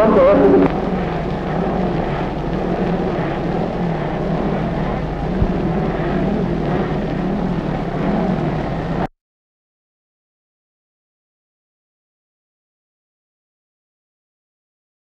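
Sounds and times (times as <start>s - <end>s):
motorcycle racing engines droning: 0.0s - 9.0s.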